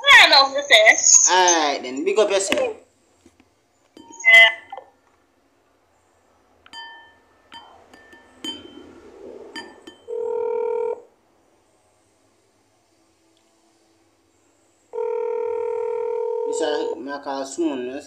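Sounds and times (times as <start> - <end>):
electronic beep: 4.0 - 4.8
phone pings: 4.0 - 4.8, 6.8 - 11.0, 15.0 - 16.9.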